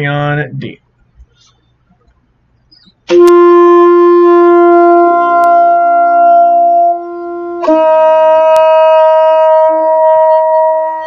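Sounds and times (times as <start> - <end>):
alto saxophone long tone: 3.1 - 11.0.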